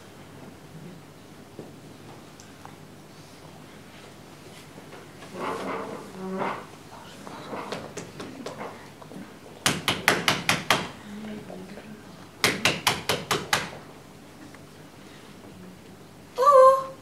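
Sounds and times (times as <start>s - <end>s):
rapid knocking on door: 9.6s - 11.0s, 12.4s - 13.8s.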